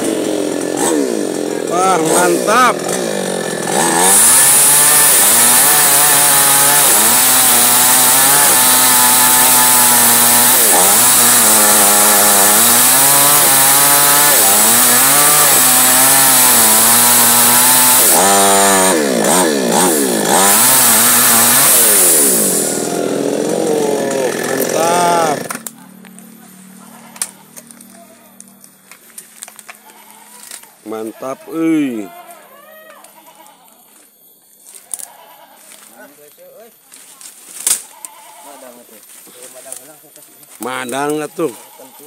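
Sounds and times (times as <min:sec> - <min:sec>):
chainsaw cutting log: 0:00.0 - 0:25.7.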